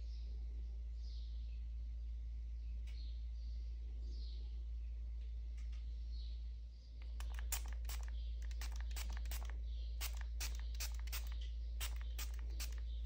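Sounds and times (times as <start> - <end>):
steady low hum: 0.0 - 13.0
spray bottle spritzes: 7.0 - 13.0.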